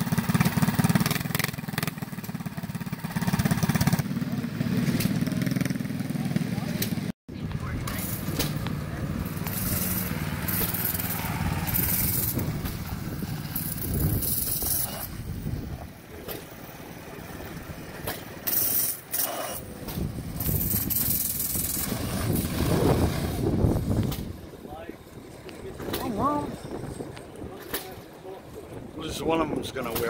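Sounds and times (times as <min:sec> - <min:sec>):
go-kart engine running: 0:00.0 - 0:30.0
wind on microphone: 0:07.3 - 0:16.2, 0:19.6 - 0:29.9.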